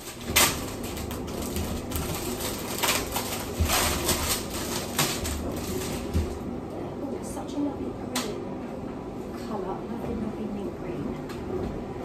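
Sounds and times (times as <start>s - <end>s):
packaging crinkling: 0.0s - 6.5s.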